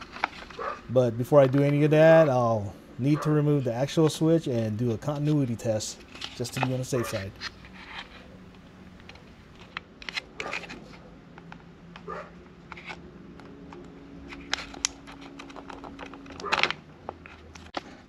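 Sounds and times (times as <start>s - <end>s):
dog barking: 0.6s - 0.8s, 7.0s - 7.2s, 12.1s - 12.3s.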